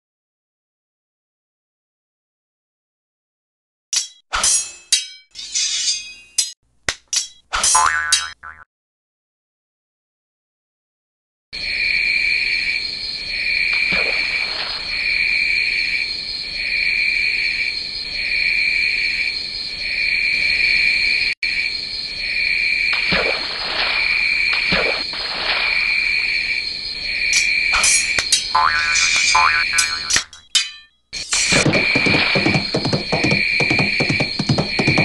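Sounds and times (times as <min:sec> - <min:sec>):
crickets chirping: 0:11.6 - 0:30.4, 0:31.2 - 0:35.0.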